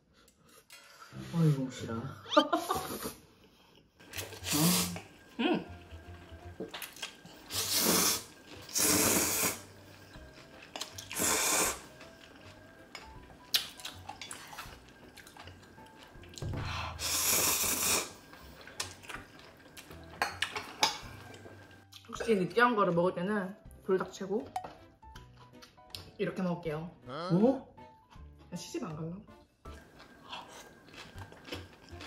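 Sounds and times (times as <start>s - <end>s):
noodle slurping: 4.2s - 5.1s, 6.9s - 9.7s, 10.9s - 12.0s
chewing: 10.2s - 11.2s, 11.9s - 16.4s, 18.3s - 22.1s, 29.7s - 32.0s.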